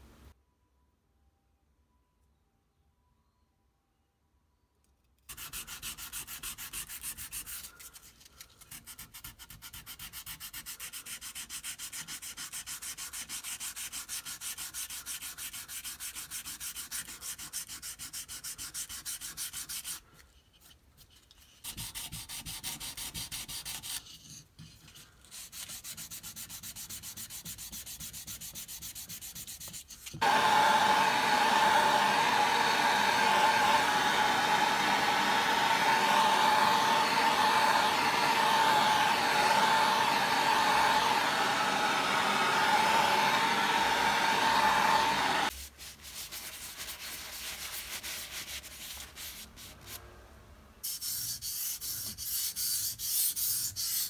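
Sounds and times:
scraping on sandpaper: 0:05.3 - 0:30.2, 0:50.8 - 0:54.0.

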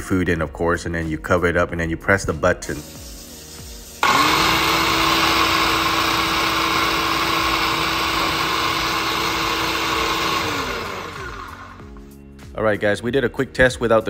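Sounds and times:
electric food chopper running: 0:04.0 - 0:12.0.

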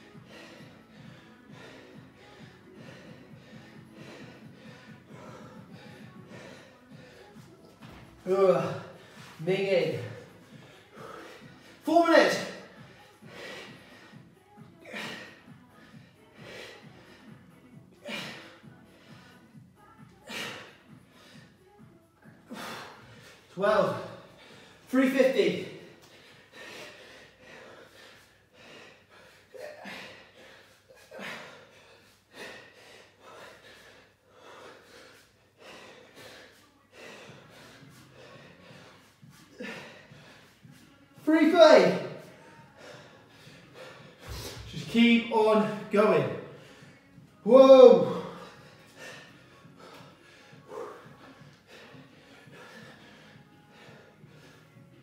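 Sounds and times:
faint background music: 0:00.0 - 0:55.0
man breathing hard: 0:00.0 - 0:55.0
man grunting: 0:47.4 - 0:48.5.

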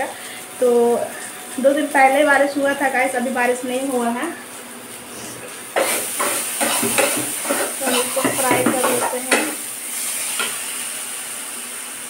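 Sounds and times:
food sizzling: 0:00.0 - 0:12.0
spatula scraping a pan: 0:05.8 - 0:09.6.

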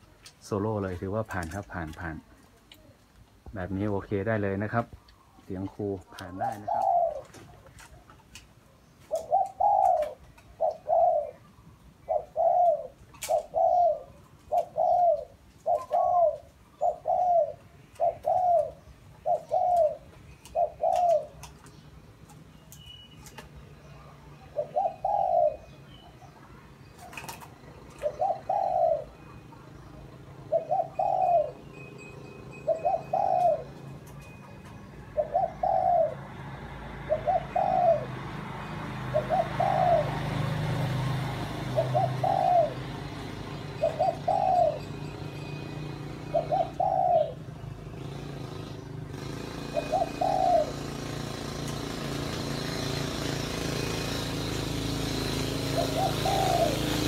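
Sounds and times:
dove cooing: 0:03.6 - 0:22.4, 0:23.1 - 0:53.6, 0:54.4 - 0:57.0.

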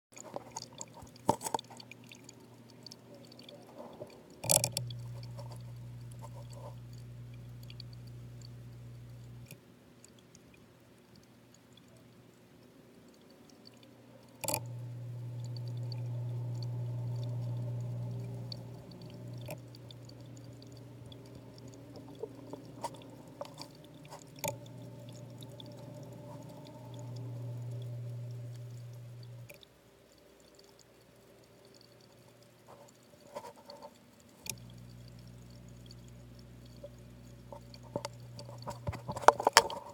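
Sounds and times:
muffled underwater hum: 0:02.3 - 0:09.5, 0:14.4 - 0:29.6, 0:34.6 - 0:39.9.

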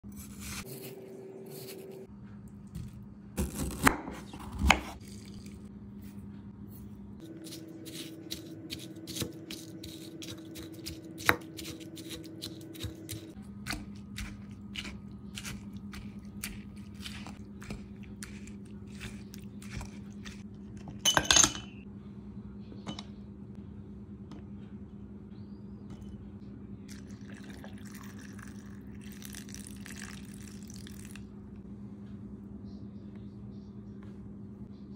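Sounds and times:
low hum: 0:00.1 - 0:34.9.

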